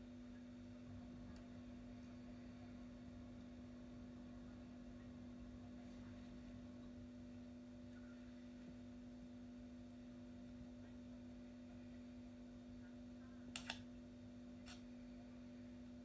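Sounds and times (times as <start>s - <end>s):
steady low hum: 0.0s - 16.0s
quick clicks: 13.5s - 13.8s.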